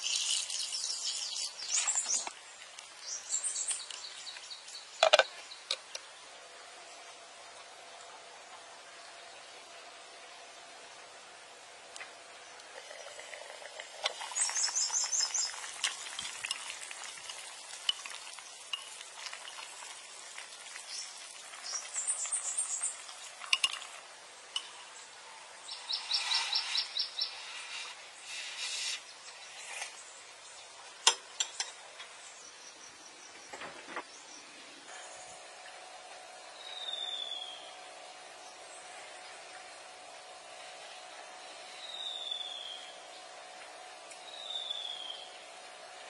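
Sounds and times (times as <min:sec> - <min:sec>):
bird chirping: 0:00.0 - 0:02.3, 0:03.0 - 0:05.8, 0:14.2 - 0:16.2, 0:25.6 - 0:27.9, 0:36.6 - 0:37.8, 0:44.2 - 0:45.4
soup simmering with faint hiss: 0:12.0 - 0:32.1.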